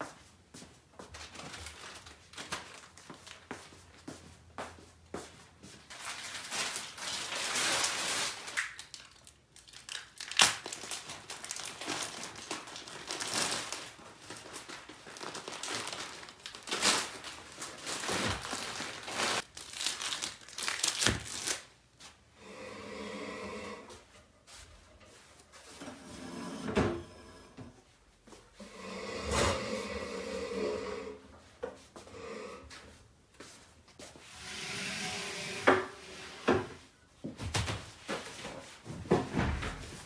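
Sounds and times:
plastic wrapping crinkling: 1.1s - 3.5s, 5.8s - 21.8s
tape tearing: 17.9s - 21.7s.

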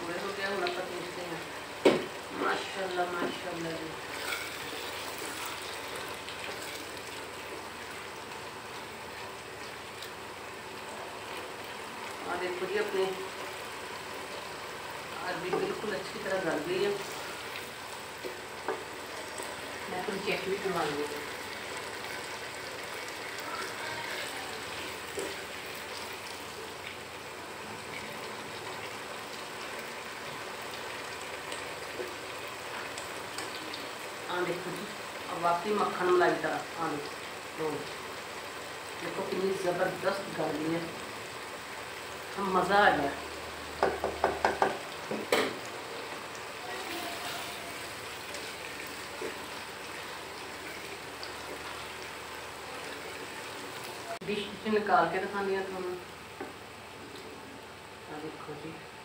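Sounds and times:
curry sizzling in a pot: 0.0s - 59.0s
spatula stirring: 4.1s - 6.9s.

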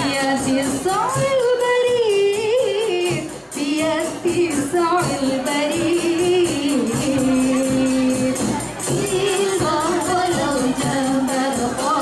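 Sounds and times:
frame drums: 0.0s - 12.0s
woman singing gliding melody: 0.0s - 12.0s.

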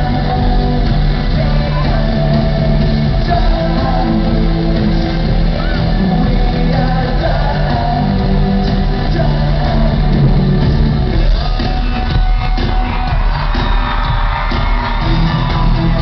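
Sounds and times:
lead vocal singing: 0.0s - 16.0s
live rock band: 0.0s - 16.0s
crowd shouting along: 11.5s - 16.0s.

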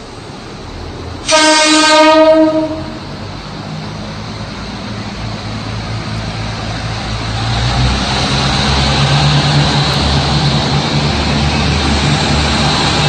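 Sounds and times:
diesel railcar engine throttling up: 0.0s - 13.0s.

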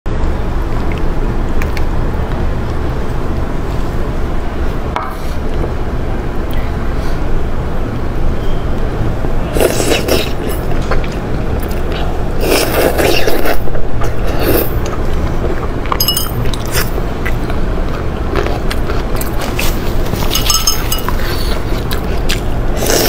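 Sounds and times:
wet chewing and slurping: 9.5s - 23.0s.

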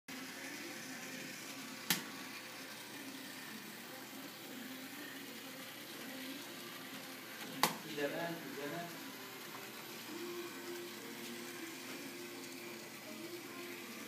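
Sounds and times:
model trams whirring: 0.1s - 7.2s.

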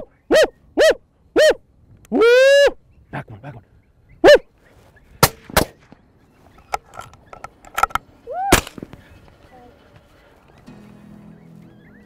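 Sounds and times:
person shouting woo: 2.2s - 2.8s, 8.3s - 8.6s
rifle shots: 5.2s - 5.9s.

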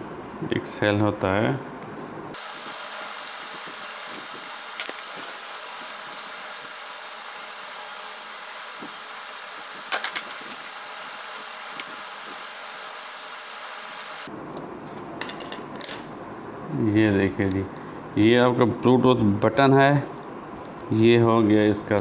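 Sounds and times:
background hiss: 0.0s - 14.3s.

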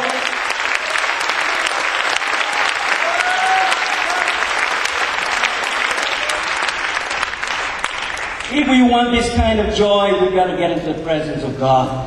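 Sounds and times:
congregation clapping: 0.0s - 9.0s.

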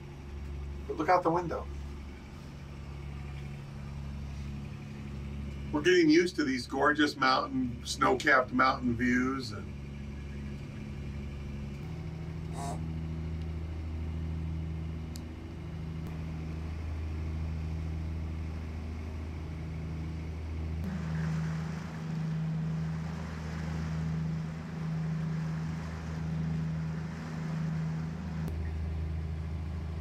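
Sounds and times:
diesel engine running: 0.0s - 30.0s
rushing wind and water: 20.8s - 30.0s.

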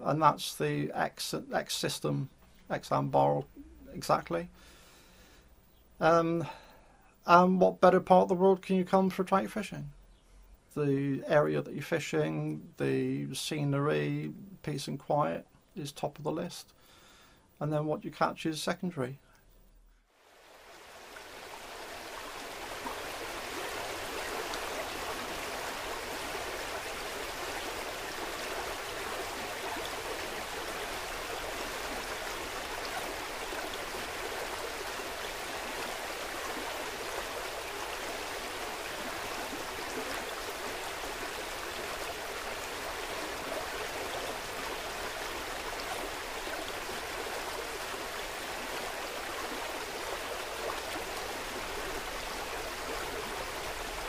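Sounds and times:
river water rushing: 20.2s - 54.0s.

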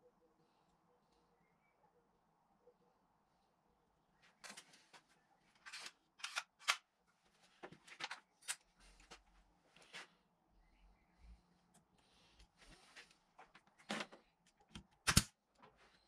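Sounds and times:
nail gun clicks and rattles: 5.6s - 6.8s, 14.7s - 15.3s.

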